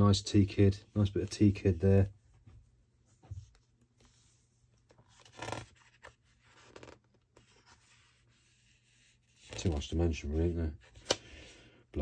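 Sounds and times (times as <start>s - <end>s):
hands rustling book pages: 1.0s - 10.0s.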